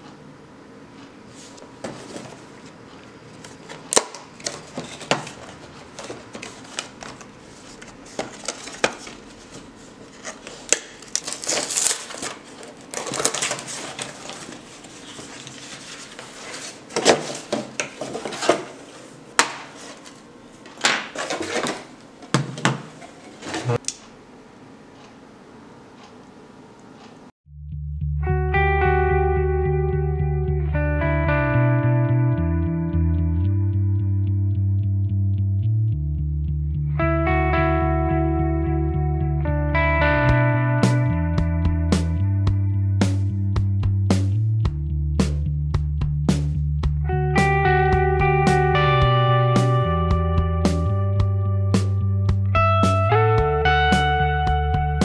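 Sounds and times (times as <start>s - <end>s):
packaging crinkling and scraping: 3.4s - 22.0s.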